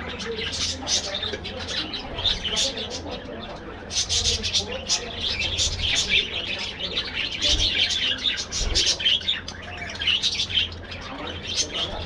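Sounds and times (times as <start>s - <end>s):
budgerigars chirping: 0.0s - 12.0s.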